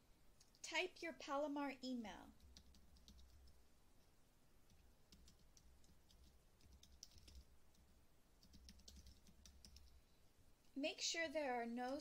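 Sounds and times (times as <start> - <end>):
computer keyboard typing: 2.4 - 3.6, 4.7 - 10.0, 11.8 - 12.0.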